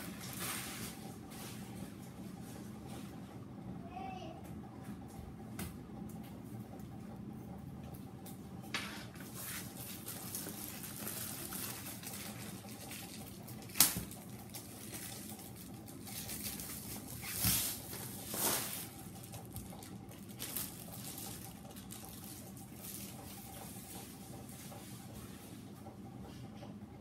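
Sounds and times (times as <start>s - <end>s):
plastic wrapping crinkling: 9.3s - 23.4s.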